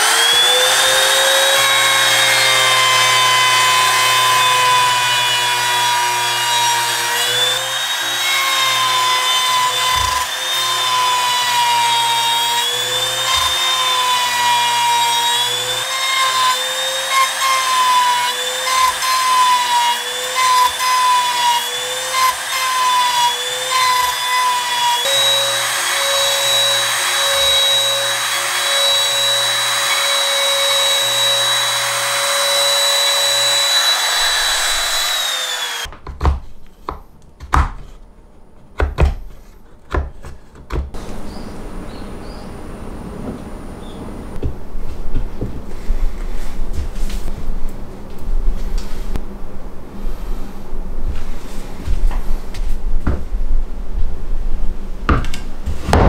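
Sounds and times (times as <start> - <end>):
trim router motor whine: 0.0 - 35.9.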